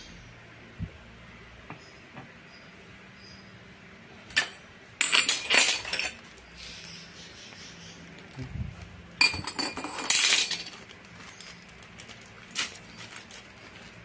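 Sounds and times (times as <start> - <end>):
plastic packet crinkling: 10.5 - 14.0.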